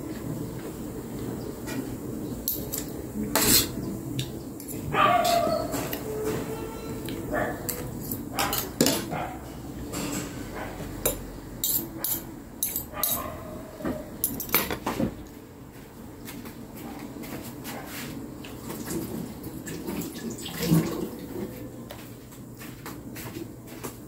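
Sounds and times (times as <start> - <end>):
cutlery clinking on plate: 7.7 - 9.1, 11.0 - 13.3, 14.2 - 14.9.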